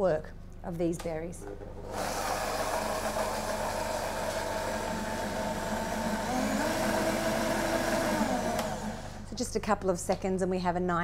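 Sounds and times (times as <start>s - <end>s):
blender running: 1.8s - 9.3s.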